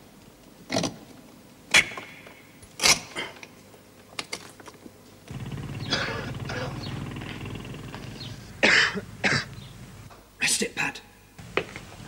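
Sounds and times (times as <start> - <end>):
steady low hum: 5.2 - 10.1, 11.2 - 12.0.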